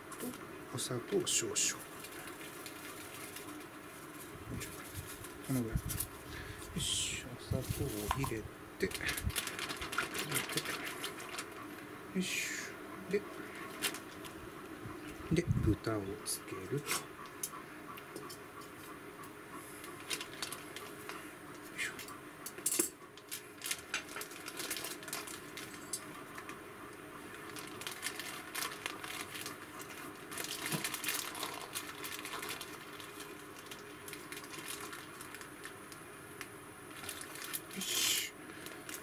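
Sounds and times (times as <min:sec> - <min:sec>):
plastic bag rustling and crinkling: 0:01.2 - 0:11.8, 0:13.5 - 0:14.4, 0:19.8 - 0:21.2, 0:23.2 - 0:26.6, 0:27.2 - 0:39.0.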